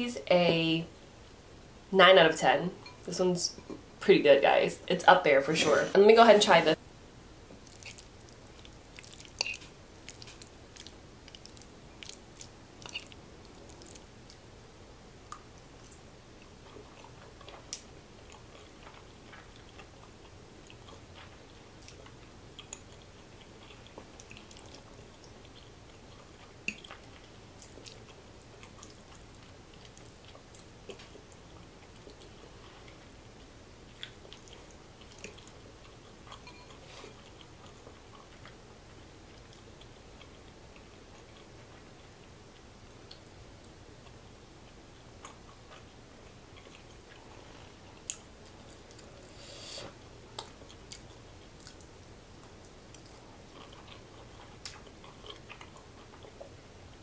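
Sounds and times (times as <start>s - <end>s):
person chewing: 7.5s - 14.4s, 16.6s - 33.1s, 33.9s - 41.9s, 45.2s - 56.6s.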